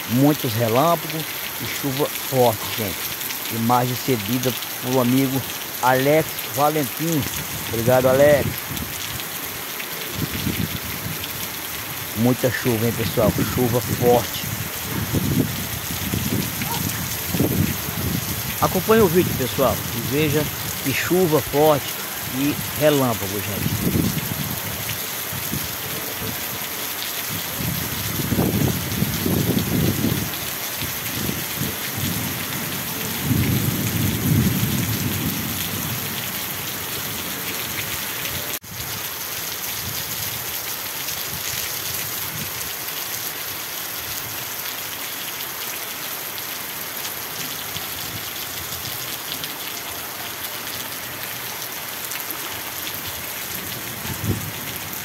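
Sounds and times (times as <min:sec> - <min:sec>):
heavy rain pouring: 0:00.0 - 0:55.0.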